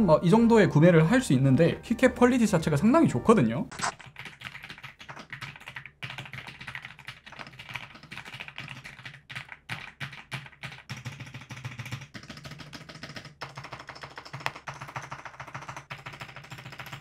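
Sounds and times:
mechanical keyboard typing: 0:03.7 - 0:17.0.

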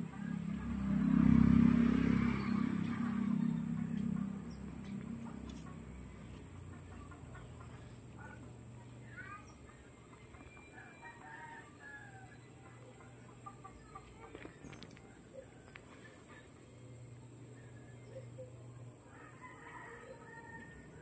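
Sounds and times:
low steady rumble: 0:00.0 - 0:10.0
chickens clucking: 0:02.4 - 0:11.0, 0:12.4 - 0:16.6.

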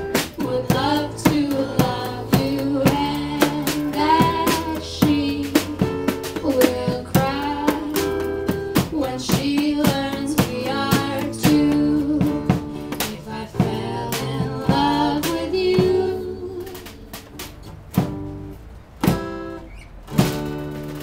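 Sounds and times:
acoustic string band playing: 0:00.0 - 0:19.4
person singing: 0:00.3 - 0:17.1.

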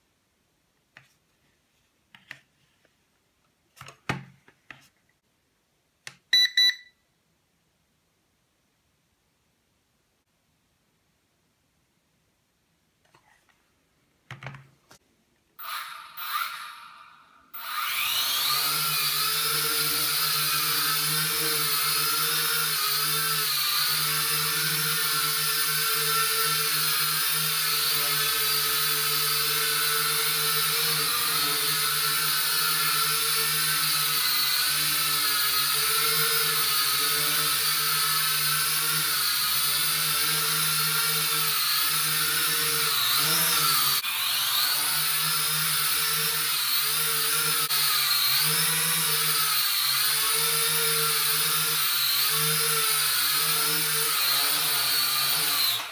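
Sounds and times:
quadcopter motors whining: 0:15.6 - 0:55.9.

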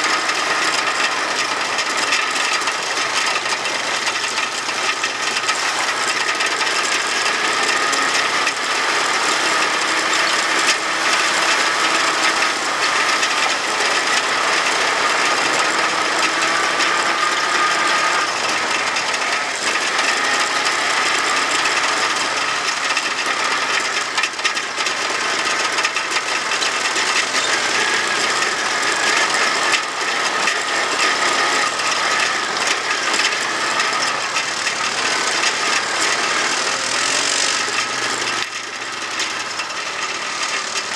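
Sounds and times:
atv engine running: 0:00.0 - 0:40.9
mechanical clatter and rattle: 0:00.0 - 0:40.9.

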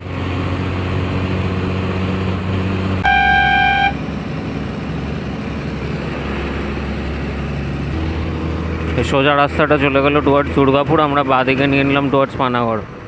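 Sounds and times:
bus engine running: 0:00.0 - 0:13.0
vehicle horn: 0:03.0 - 0:04.0.

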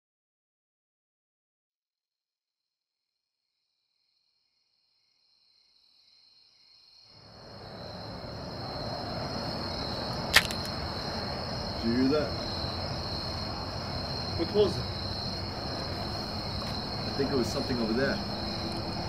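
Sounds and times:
crickets chirping: 0:03.5 - 0:19.0
sharp click: 0:10.3 - 0:10.8.

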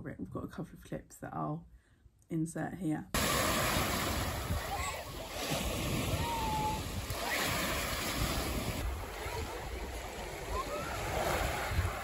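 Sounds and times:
waves breaking on shingle beach: 0:03.2 - 0:12.0
wind buffeting microphone: 0:03.5 - 0:12.0.

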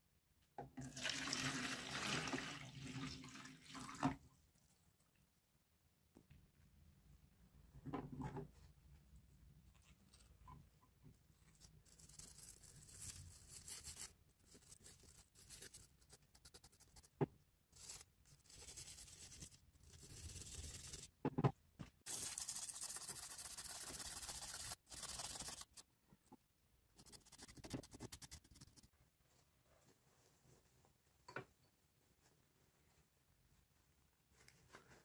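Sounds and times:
brush scrubbing metal in liquid: 0:22.1 - 0:25.8.

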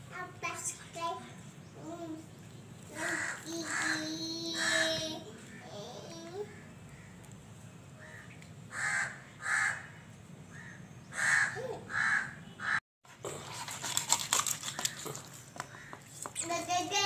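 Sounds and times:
crow cawing: 0:03.0 - 0:04.0, 0:08.0 - 0:12.8, 0:15.7 - 0:16.0.

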